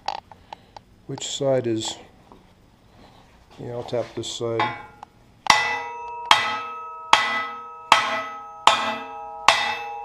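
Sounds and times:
metal ringing: 4.3s - 10.0s
hammer tapping metal frame: 4.6s - 10.0s.

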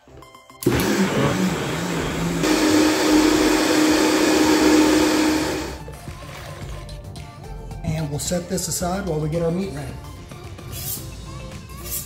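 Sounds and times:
blender running: 0.6s - 5.9s.

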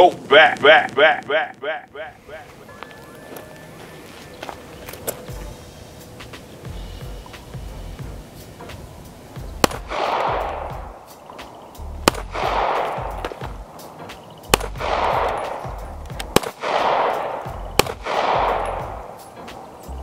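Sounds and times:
pistol shots: 9.6s - 19.7s.

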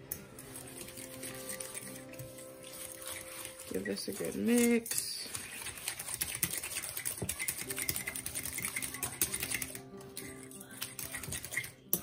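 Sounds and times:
fork beating eggs in glass bowl: 0.1s - 12.0s.

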